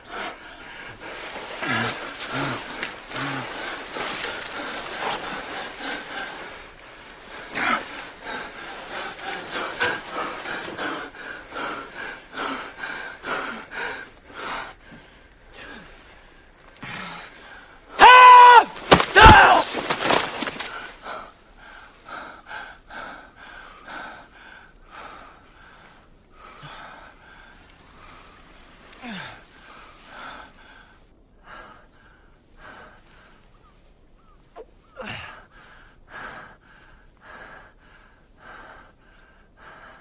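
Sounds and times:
men panting and gasping: 0.0s - 33.4s, 34.7s - 40.0s
man crying out: 18.0s - 19.7s
man yelling: 18.0s - 19.7s.

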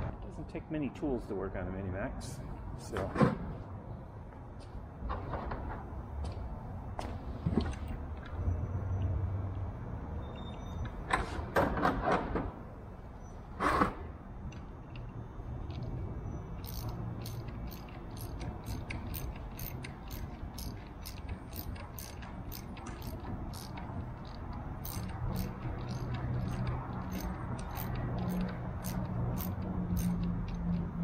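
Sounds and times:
ratchet wrench clicking: 16.5s - 31.0s.

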